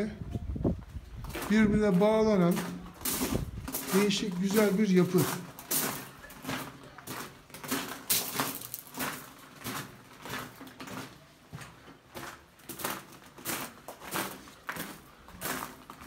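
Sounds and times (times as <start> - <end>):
footsteps on gravel: 0.6 - 16.0.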